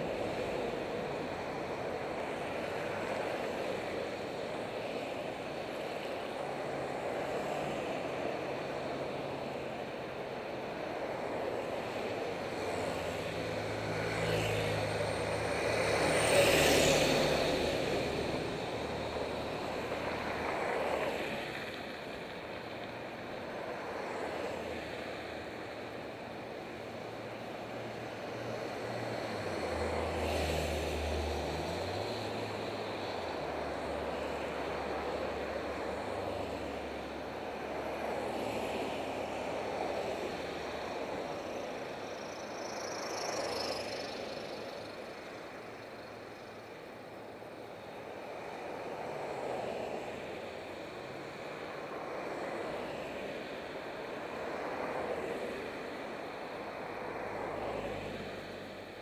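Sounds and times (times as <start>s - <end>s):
car traffic passing: 0.0s - 59.0s.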